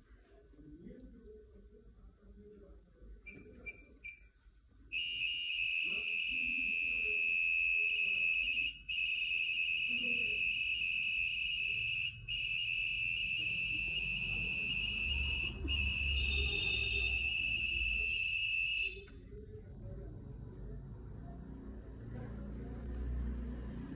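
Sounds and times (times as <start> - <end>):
high-pitched data tone: 9.4 - 19.0
short beep: 11.6 - 19.1.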